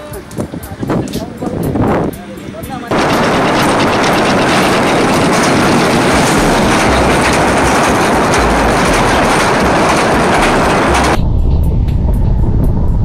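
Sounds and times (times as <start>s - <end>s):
toy train rumbling on track: 2.9s - 11.2s.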